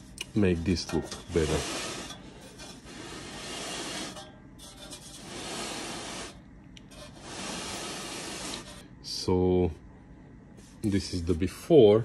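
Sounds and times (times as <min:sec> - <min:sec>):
dry rubbing noise: 0:00.0 - 0:02.1, 0:02.7 - 0:04.2, 0:05.0 - 0:08.8.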